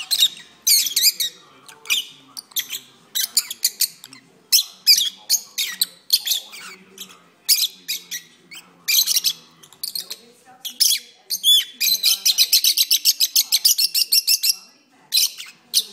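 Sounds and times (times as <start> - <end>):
lovebirds chirping and squeaking: 0.0 - 15.9.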